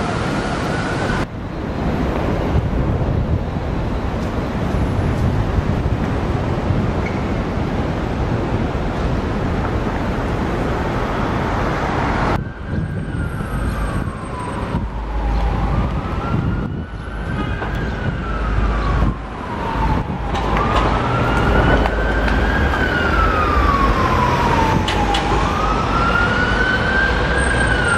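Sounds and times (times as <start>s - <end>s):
street traffic rumble: 0.0s - 27.9s
siren wailing: 12.3s - 27.9s.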